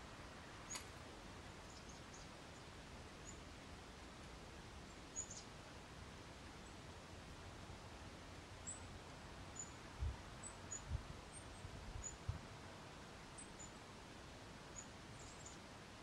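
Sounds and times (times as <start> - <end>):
small birds chipping: 0.4 - 1.0, 4.8 - 5.6, 8.6 - 12.2, 14.8 - 15.7.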